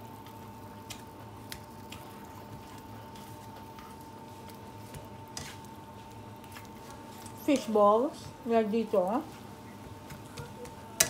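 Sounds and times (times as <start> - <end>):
fish cakes sizzling in a pan: 0.0 - 8.2.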